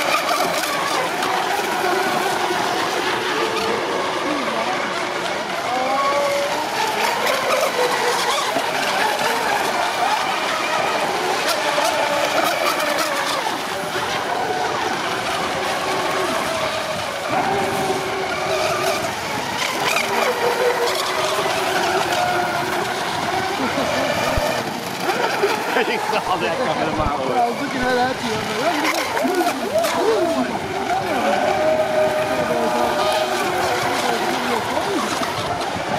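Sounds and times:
model boat motors whining: 0:00.0 - 0:35.9.

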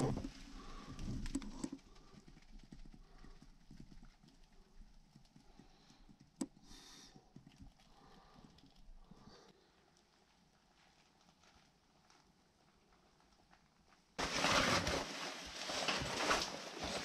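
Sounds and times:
clothing rustle: 0:14.2 - 0:17.0.

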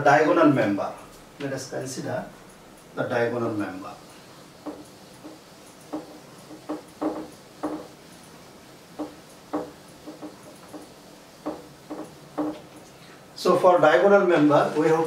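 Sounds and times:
duster squeaking on whiteboard: 0:04.6 - 0:08.0, 0:09.0 - 0:12.7.

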